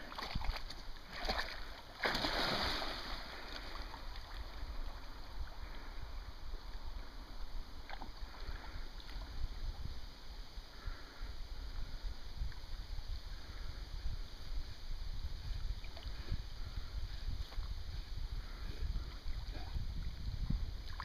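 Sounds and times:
low rumble of wind and water: 0:00.0 - 0:21.0
dog splashing through water: 0:00.1 - 0:03.0.

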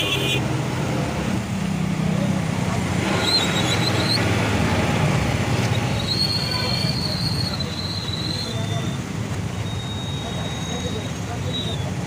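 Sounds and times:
street traffic noise: 0:00.0 - 0:12.0
high squealing tone: 0:05.7 - 0:11.8.

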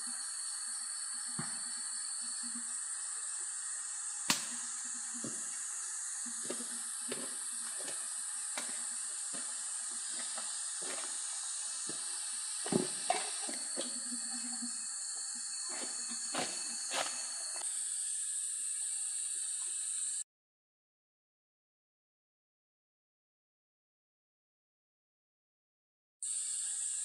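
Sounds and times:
high insect drone: 0:00.0 - 0:20.2, 0:26.2 - 0:27.0
footsteps rustling dry leaves: 0:15.7 - 0:17.6.

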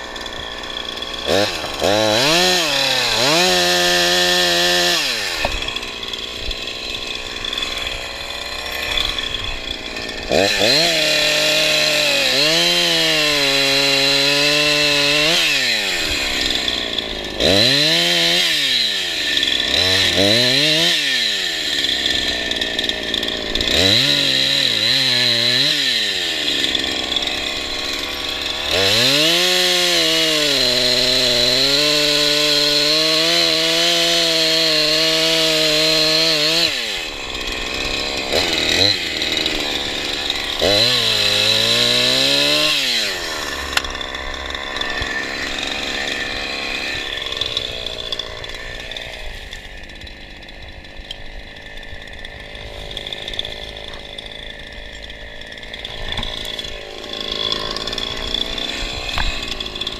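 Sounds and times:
chainsaw cutting wood: 0:00.0 - 0:59.9
chainsaw revving: 0:00.0 - 0:59.9.

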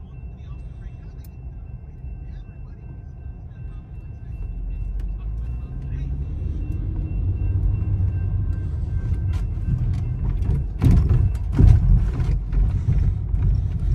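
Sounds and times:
car interior rumble: 0:00.0 - 0:13.9
tyres thumping over railroad tracks: 0:09.1 - 0:13.9.

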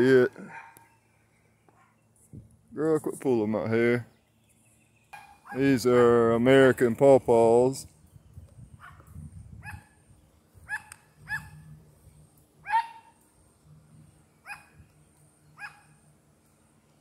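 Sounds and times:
dog barking: 0:00.4 - 0:00.9, 0:10.7 - 0:11.6, 0:12.6 - 0:13.1.

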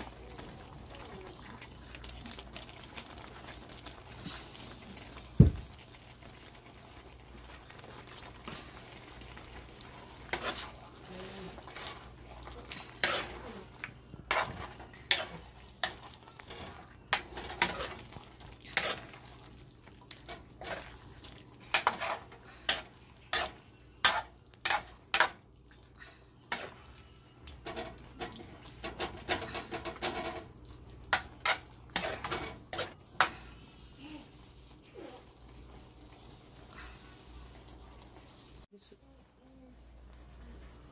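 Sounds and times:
metal spoon scraping a pan: 0:10.2 - 0:19.4, 0:20.1 - 0:25.4, 0:26.5 - 0:26.9, 0:31.1 - 0:37.6.

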